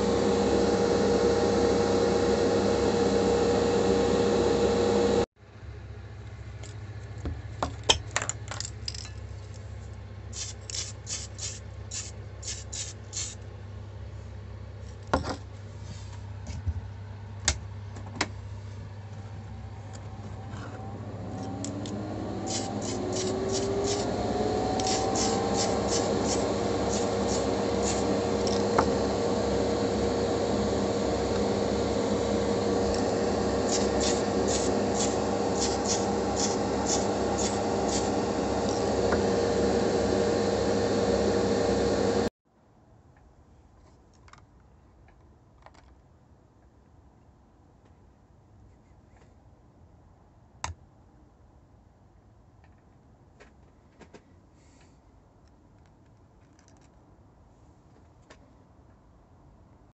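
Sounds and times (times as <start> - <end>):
small electric motor whine: 0.0 - 5.3, 19.5 - 42.3.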